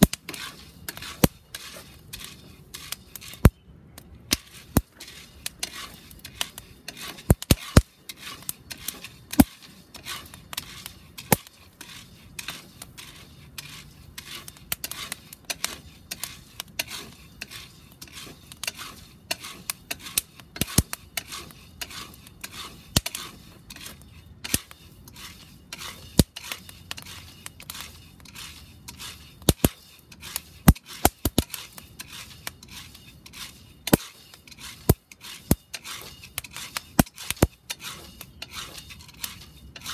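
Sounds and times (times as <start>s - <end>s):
spatula scraping beans in pot: 0.0s - 39.9s
coffee beans popping: 29.4s - 32.4s.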